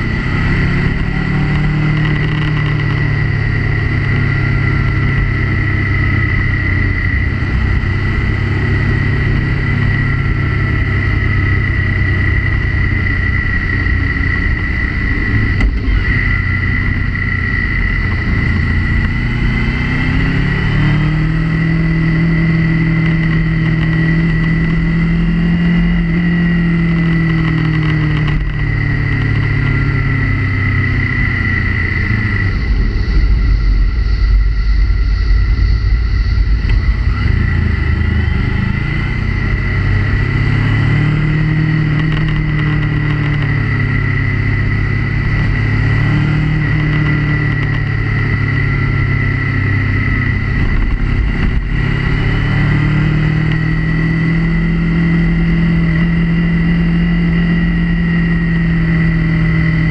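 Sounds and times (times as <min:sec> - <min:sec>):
high whine: 0:00.0 - 0:59.9
motorcycle engine running: 0:00.0 - 0:59.9
wind and road noise: 0:00.0 - 0:59.9.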